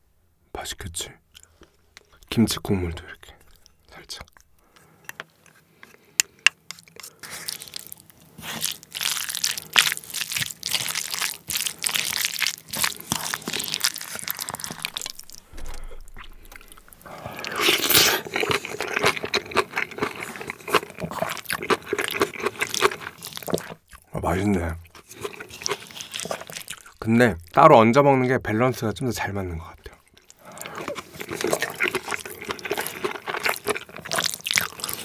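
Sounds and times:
wet squelching of stirred food: 4.4 - 24.2, 24.8 - 27.6, 29.9 - 35.0
wooden spoon scooping: 12.2 - 18.4.

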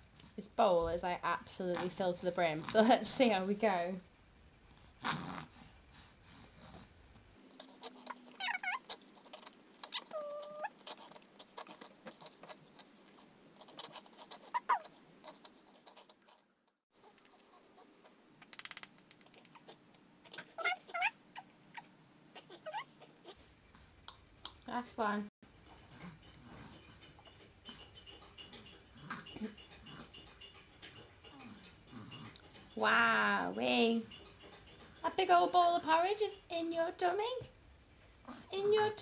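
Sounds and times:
small dog whining: 7.8 - 12.2, 14.4 - 14.9, 19.5 - 23.5.

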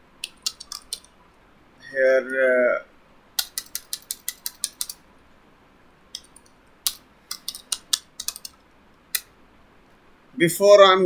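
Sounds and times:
keyboard typing: 0.2 - 1.2, 3.4 - 5.0, 6.1 - 9.3.

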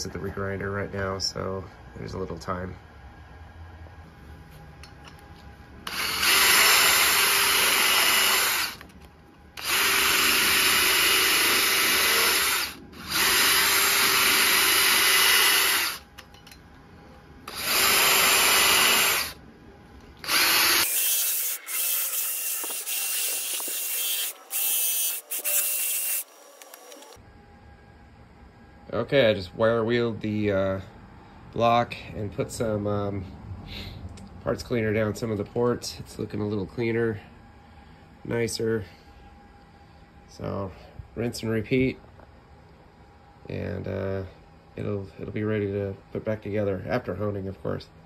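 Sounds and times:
power tool wire brush on metal: 5.9 - 8.8, 9.6 - 16.0, 17.5 - 19.4, 20.2 - 27.2.

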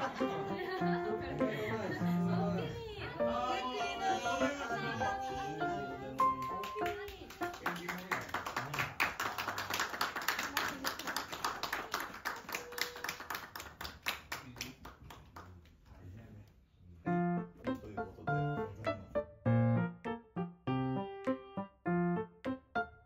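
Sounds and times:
piano music: 0.0 - 8.1, 17.1 - 23.0
guests applauding: 5.8 - 15.8.

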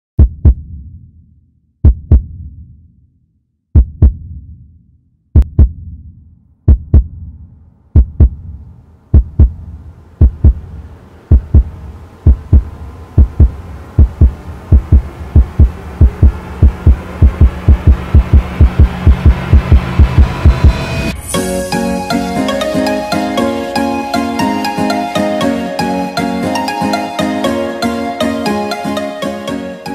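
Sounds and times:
heartbeat thumps: 0.2 - 1.0, 1.8 - 2.7, 3.8 - 4.7, 5.4 - 20.9
drone: 9.4 - 27.2.

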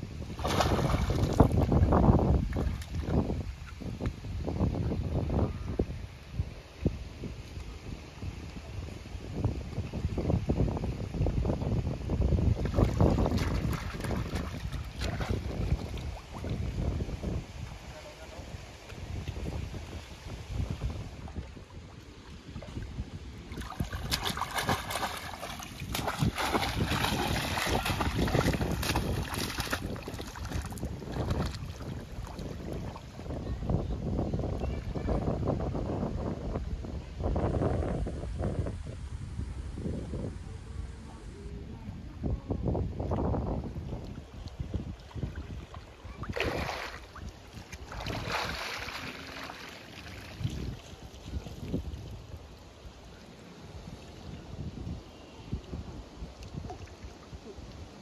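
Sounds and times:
wind on microphone: 0.0 - 53.0, 53.6 - 58.0
pole splashing water: 0.4 - 1.7, 12.7 - 16.6, 23.5 - 33.0, 46.2 - 50.7.

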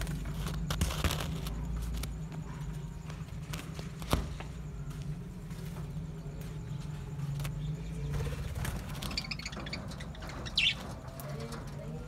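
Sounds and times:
steady low hum: 0.0 - 12.0
budgerigars chirping: 8.1 - 11.1.

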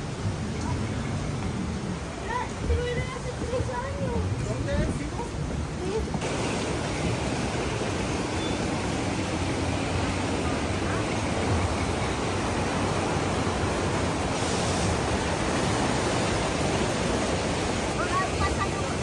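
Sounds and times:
whitewater rushing: 0.0 - 19.0.

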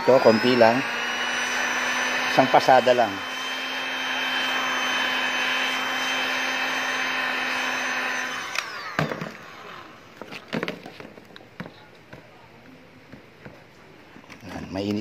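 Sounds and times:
hot-air blower whining: 0.0 - 11.0.

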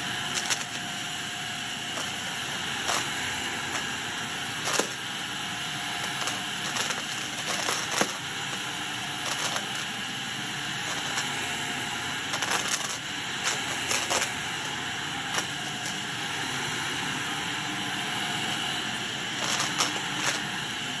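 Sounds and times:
vacuum cleaner running: 0.0 - 21.0
debris clicking through vacuum: 0.1 - 0.8, 1.9 - 5.1, 5.9 - 10.0, 10.7 - 11.5, 12.2 - 16.0, 19.4 - 20.6.

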